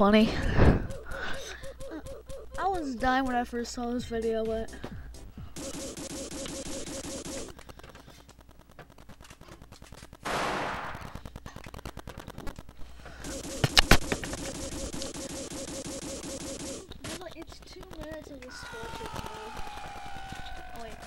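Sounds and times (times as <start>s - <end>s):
rapid run of game hits: 4.2s - 21.0s
sharp loud cracks: 9.0s - 17.4s.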